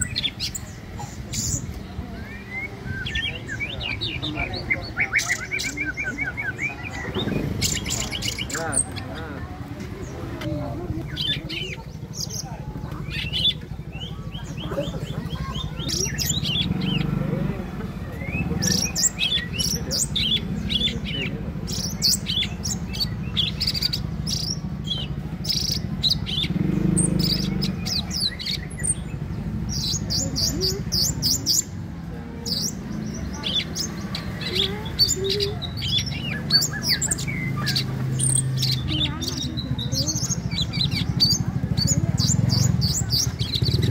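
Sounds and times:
bird singing chirps and whistles: 0:01.4 - 0:08.6.

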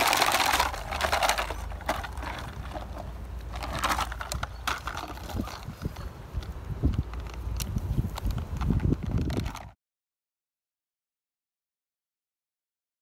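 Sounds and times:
rag toy rustling: 0:00.0 - 0:06.1.

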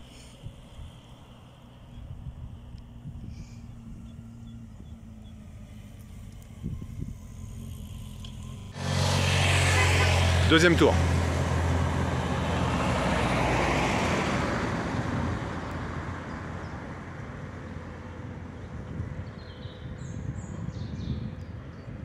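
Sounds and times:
birds chirping: 0:01.2 - 0:08.7, 0:17.6 - 0:22.0
car driving past: 0:02.8 - 0:19.8.

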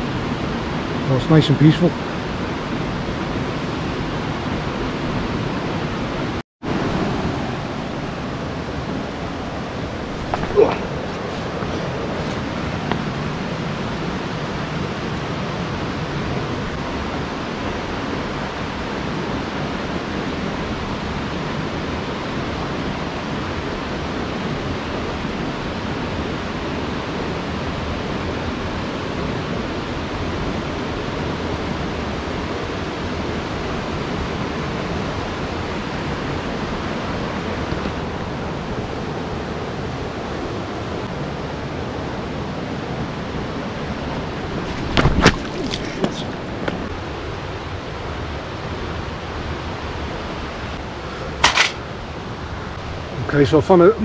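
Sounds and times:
river rushing over rocks: 0:04.8 - 0:24.9, 0:36.8 - 0:53.5.

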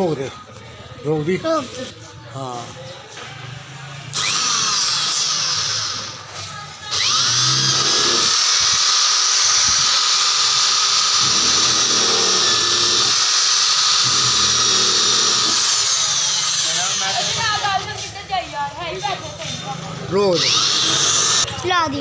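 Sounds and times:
drill whining into sheet metal: 0:04.1 - 0:17.6, 0:20.3 - 0:21.5.

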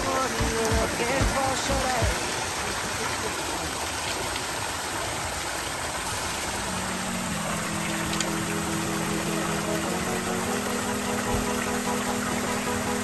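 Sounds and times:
small waterfalls splashing: 0:00.0 - 0:13.0
steady low hum: 0:06.1 - 0:13.0.

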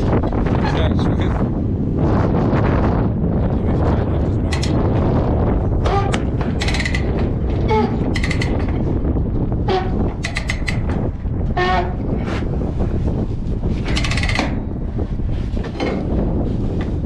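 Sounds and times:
wind rumble on microphone: 0:00.0 - 0:17.0
ratchet squeaky metallic clicks: 0:05.8 - 0:08.7, 0:09.8 - 0:10.9.

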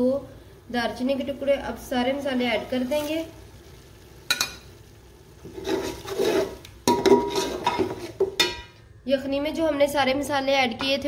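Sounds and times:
spatula scraping a pot: 0:05.4 - 0:08.3.

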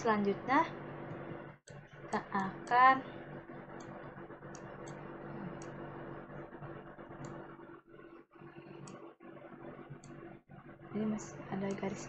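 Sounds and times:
steady low hum: 0:00.0 - 0:12.0
computer mouse clicks: 0:01.1 - 0:02.8, 0:03.8 - 0:05.8, 0:07.1 - 0:07.4, 0:08.7 - 0:09.1, 0:09.9 - 0:10.2, 0:11.6 - 0:12.0.

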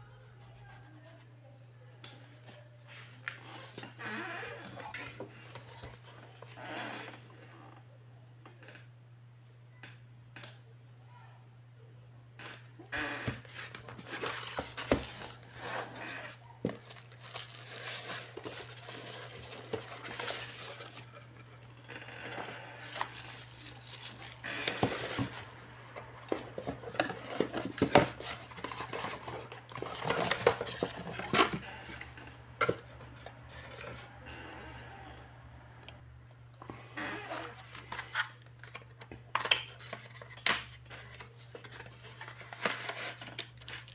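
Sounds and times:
plastic wrapping rustling: 0:13.2 - 0:32.0, 0:39.7 - 0:43.9
cardboard box being opened: 0:13.2 - 0:32.1.

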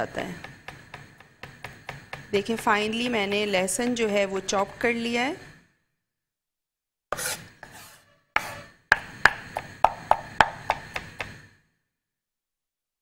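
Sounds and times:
knife chopping on wooden board: 0:00.4 - 0:02.3, 0:07.2 - 0:11.4.

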